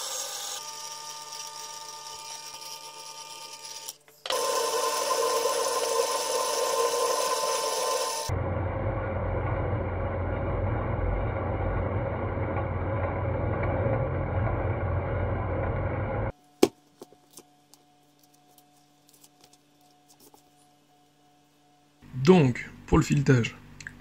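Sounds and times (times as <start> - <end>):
metal lathe running: 4.3 - 16.2
book pages being turned: 16.8 - 20.7.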